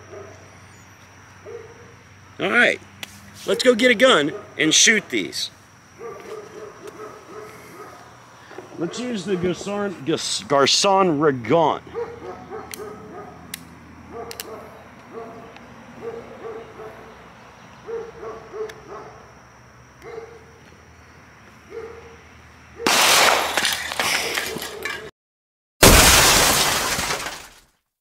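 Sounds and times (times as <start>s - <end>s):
dog barking: 0.1s - 0.4s, 1.4s - 2.0s, 3.5s - 4.6s, 6.0s - 8.1s, 8.8s - 9.2s, 11.9s - 13.5s, 14.1s - 17.2s, 17.8s - 19.3s, 20.0s - 20.5s, 21.7s - 22.2s
spray cans bursting from gunshot: 22.9s - 23.9s.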